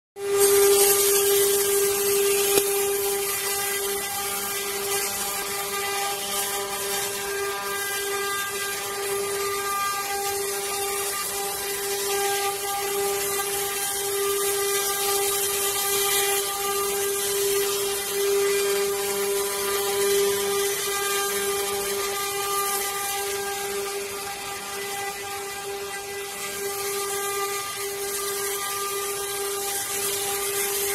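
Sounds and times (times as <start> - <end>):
router bits cutting wood hiss: 0.2 - 30.9
router spindles whining: 0.2 - 30.9.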